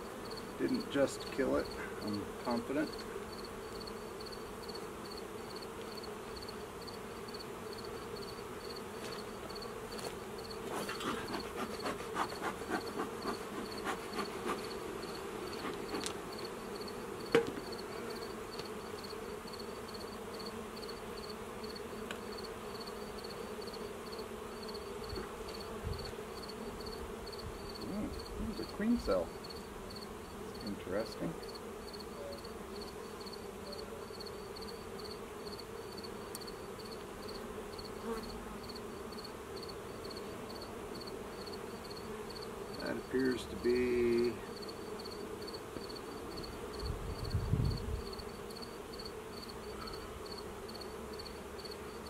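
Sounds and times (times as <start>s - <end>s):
bee smoker puffs: 0.0s - 52.0s
honeybees buzzing: 0.0s - 52.0s
sharp knock: 17.3s - 17.7s.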